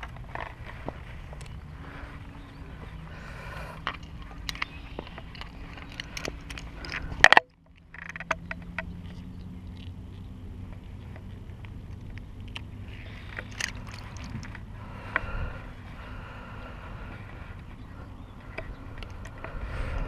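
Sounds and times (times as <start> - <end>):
stones clicking underfoot: 0.0 - 3.0, 3.6 - 15.3
steady low hum: 0.0 - 20.0
gear being handled: 11.8 - 14.7.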